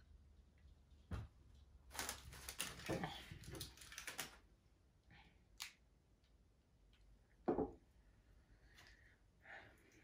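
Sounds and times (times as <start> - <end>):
crackly clicks of handling food: 1.6 - 4.5, 5.5 - 7.1.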